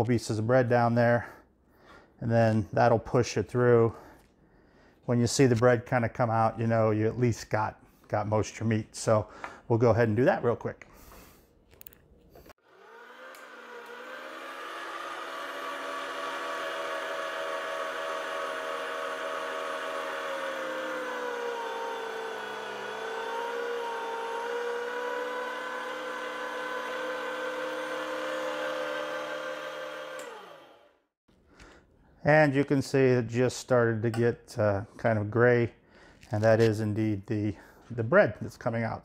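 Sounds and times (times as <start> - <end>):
electric meat grinder motor whirring: 12.6 - 31.1.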